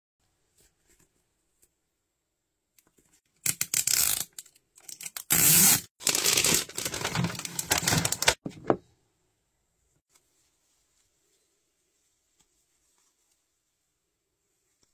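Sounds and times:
packaging wrap ripping and crinkling: 5.0s - 8.4s.

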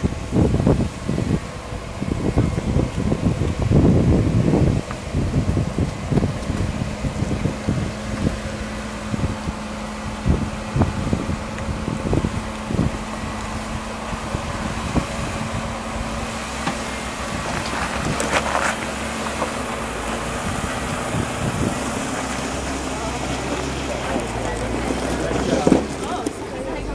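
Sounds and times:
engine running at low revs: 0.0s - 26.9s
tyres crunching over rock: 14.4s - 26.7s.

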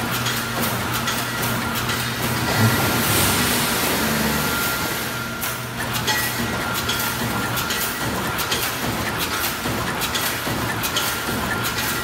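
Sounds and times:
machinery low hum: 0.0s - 8.2s
sharp machine clacks: 0.0s - 12.0s.

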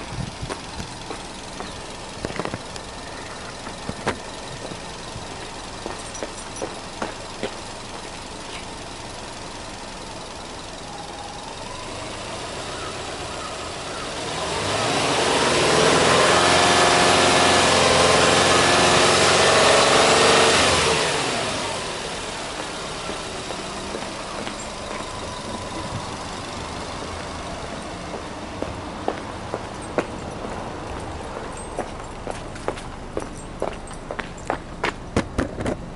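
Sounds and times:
car engine idling and revving: 0.0s - 35.9s.

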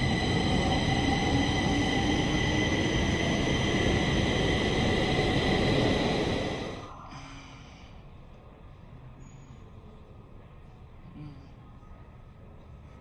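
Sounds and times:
metro train rumbling: 0.0s - 7.1s
high-pitched train whines: 0.0s - 8.1s.

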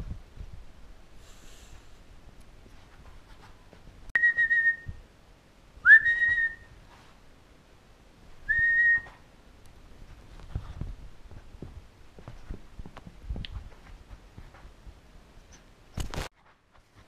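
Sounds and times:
person whistling short notes: 4.2s - 5.0s, 5.9s - 6.7s, 8.5s - 9.2s.

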